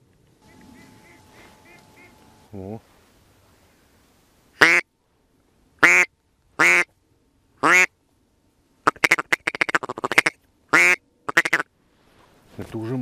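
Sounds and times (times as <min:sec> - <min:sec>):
duck quacking: 0:00.5 - 0:02.2, 0:04.6 - 0:04.8, 0:05.8 - 0:06.9, 0:07.6 - 0:07.9, 0:08.8 - 0:11.6.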